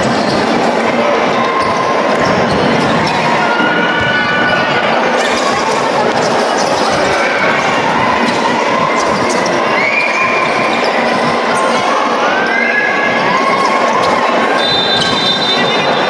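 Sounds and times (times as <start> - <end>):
basketball bouncing on court: 0.0 - 3.3
loud background din: 0.0 - 16.0.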